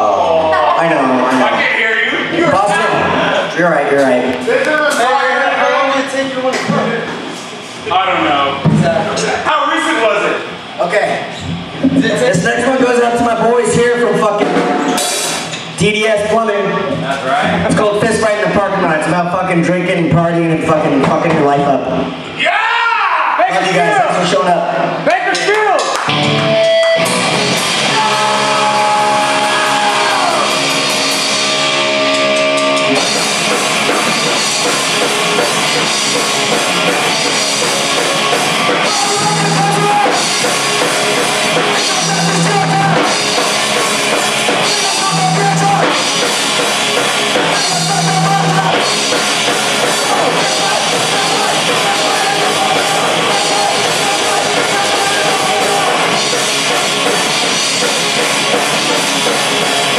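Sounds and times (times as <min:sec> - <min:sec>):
rock band playing live: 0:14.0 - 0:15.8, 0:26.0 - 0:59.9
held guitar notes ringing: 0:26.1 - 0:28.7, 0:30.3 - 0:58.2.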